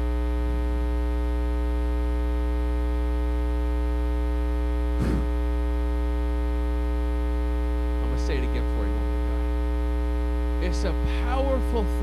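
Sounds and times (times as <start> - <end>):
electrical mains hum: 0.0 - 12.0
short louder sound: 5.0 - 5.4.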